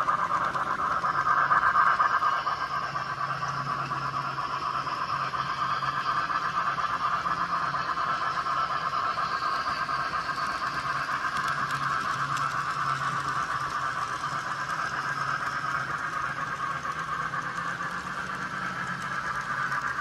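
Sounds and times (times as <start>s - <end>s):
model trains whirring: 0.0s - 20.0s.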